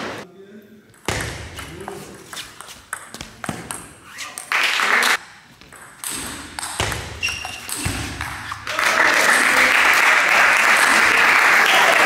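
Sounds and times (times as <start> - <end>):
crowd cheering: 8.7 - 12.0.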